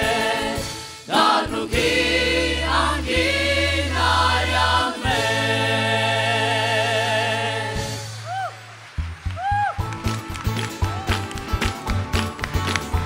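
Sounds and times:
choir singing a hymn: 0:00.0 - 0:08.2.

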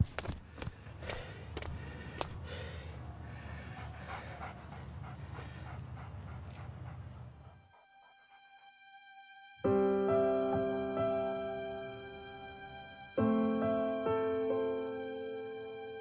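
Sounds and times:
dog panting: 0:00.7 - 0:08.6.

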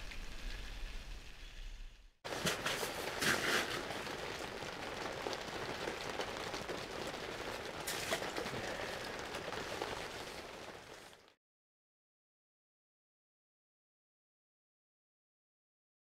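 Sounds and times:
rain pattering on fabric roof: 0:02.2 - 0:11.4.

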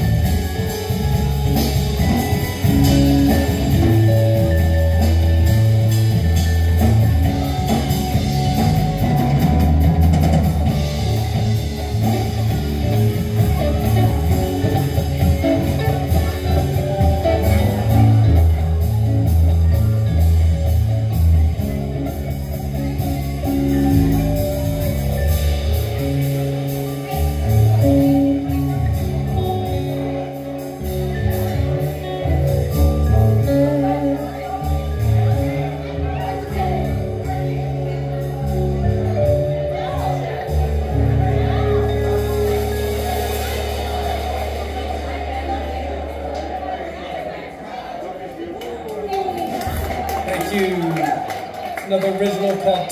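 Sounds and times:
vibraphone: 0:00.0 - 0:11.8
drum kit: 0:00.0 - 0:46.6
electric guitar: 0:00.0 - 0:47.2
electric bass line: 0:00.0 - 0:47.3.

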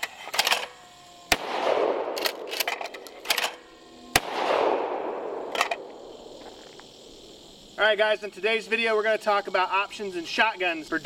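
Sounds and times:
shotgun shots echoing: 0:01.3 - 0:03.5, 0:04.1 - 0:06.2.

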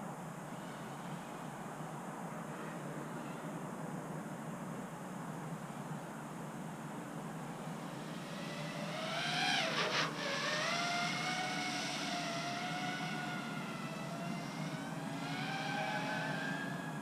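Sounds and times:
drone motors whining: 0:07.4 - 0:17.0.

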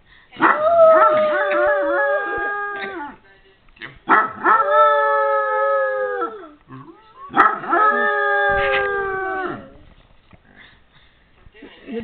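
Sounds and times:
dog barking in video: 0:00.4 - 0:01.6, 0:04.1 - 0:04.8, 0:07.3 - 0:08.0
dog howling: 0:00.4 - 0:03.2, 0:04.1 - 0:09.8.

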